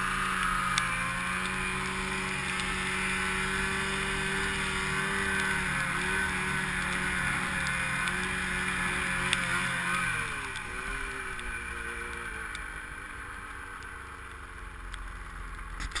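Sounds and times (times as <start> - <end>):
snowmobile engine running: 0.0 - 16.0.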